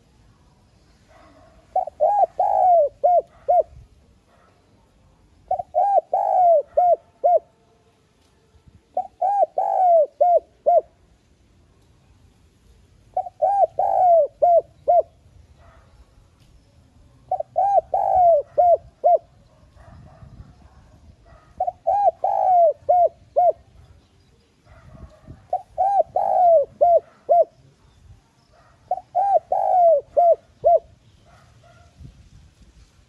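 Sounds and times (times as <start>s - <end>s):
dove cooing: 1.1s - 3.8s, 5.4s - 7.5s, 8.9s - 11.0s, 13.1s - 15.8s, 17.3s - 23.9s, 24.7s - 27.8s, 28.6s - 31.9s.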